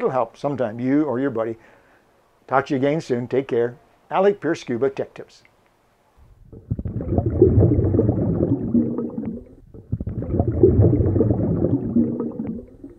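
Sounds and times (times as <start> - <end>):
water bubbling and gurgling: 6.5 - 12.9.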